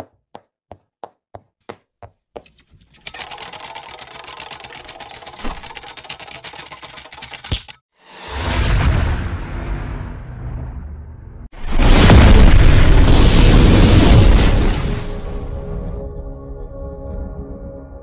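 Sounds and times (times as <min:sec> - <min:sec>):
fast mechanical rattling: 0:02.5 - 0:07.8
whoosh into fiery burst: 0:08.1 - 0:15.3.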